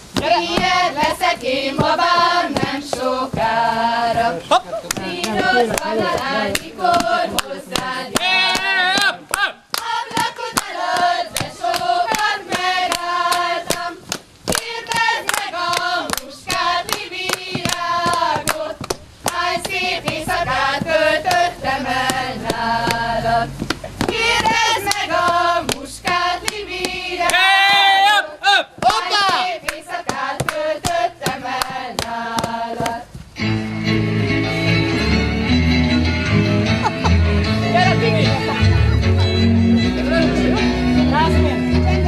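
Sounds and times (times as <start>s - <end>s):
group singing folk song: 0.0s - 42.0s
hand claps and slaps: 1.8s - 3.5s, 4.8s - 23.0s, 23.6s - 27.9s, 28.8s - 33.0s.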